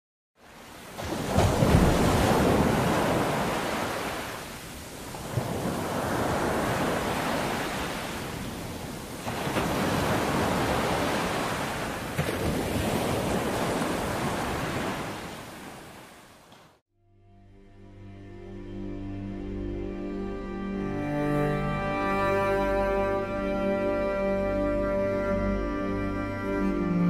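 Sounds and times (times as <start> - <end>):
waves breaking on beach: 0.4 - 16.8.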